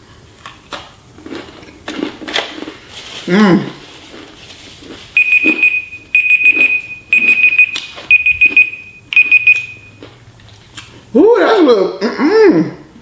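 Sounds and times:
timer alarm beeping: 5.2s - 10.0s.

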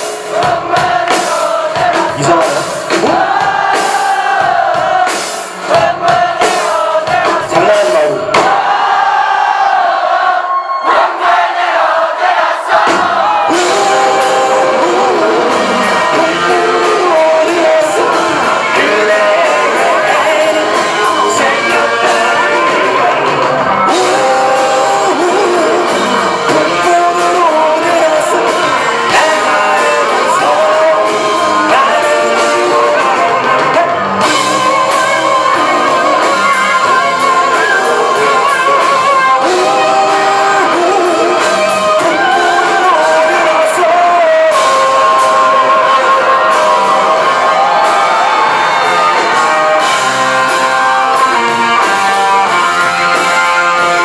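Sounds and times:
guitar: 0.0s - 9.2s, 12.7s - 54.0s
live rock band playing: 0.0s - 54.0s
man singing into microphone: 0.5s - 3.2s, 5.7s - 8.4s, 13.5s - 48.4s.

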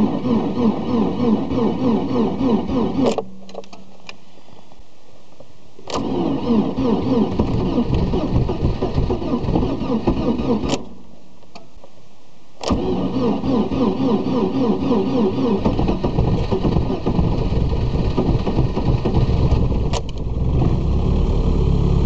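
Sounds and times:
engine starter cranking: 0.0s - 3.8s, 5.8s - 11.0s, 12.6s - 20.3s
steady low hum: 0.0s - 22.0s.

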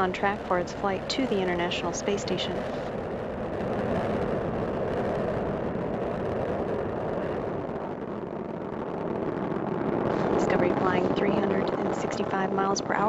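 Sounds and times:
rocket exhaust rumble: 0.0s - 13.0s.

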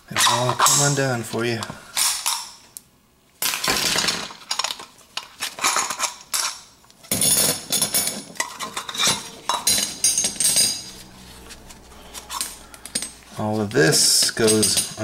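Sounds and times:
metal hardware clinking and scraping: 5.5s - 15.0s.

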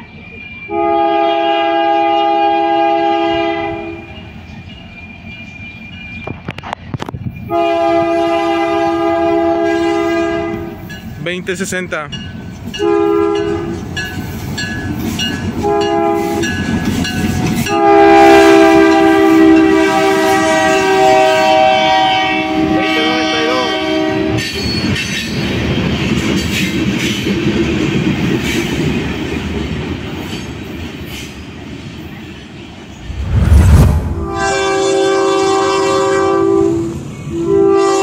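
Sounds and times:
freight train rumbling past: 0.0s - 38.0s
locomotive air horn blasts: 0.7s - 4.1s, 7.5s - 10.8s, 12.8s - 13.8s, 15.6s - 16.5s, 17.7s - 24.4s, 34.2s - 38.0s.

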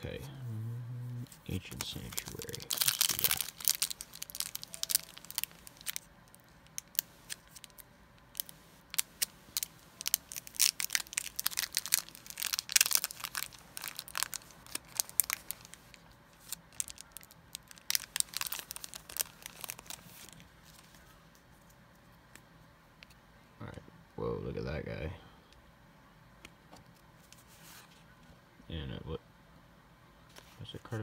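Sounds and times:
foil wrapper crinkling: 1.5s - 21.1s.

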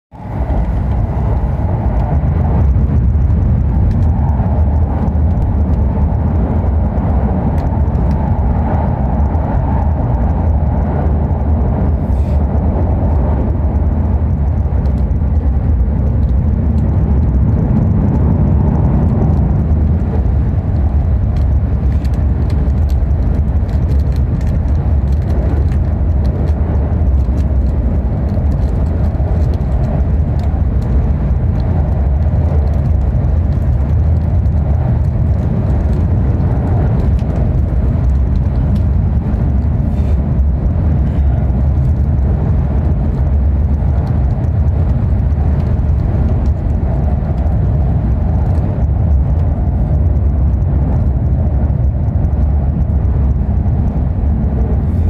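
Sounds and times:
train hum and rush: 0.1s - 55.0s
train wheels rumbling on rails: 0.1s - 55.0s.

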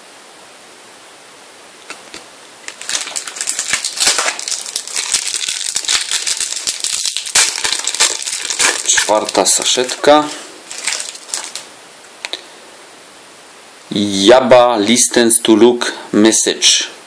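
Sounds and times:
foil wrapper crinkling: 1.9s - 11.7s.

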